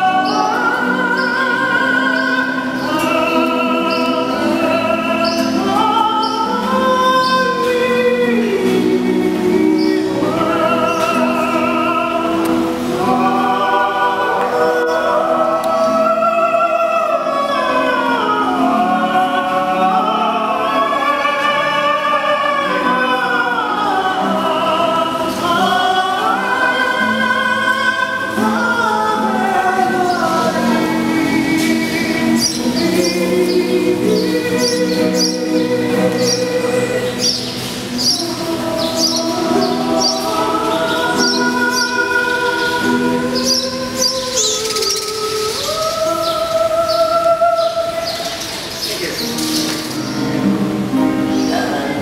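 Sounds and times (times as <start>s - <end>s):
man singing operatically: 0.0s - 48.0s
voices singing harmony: 0.0s - 52.0s.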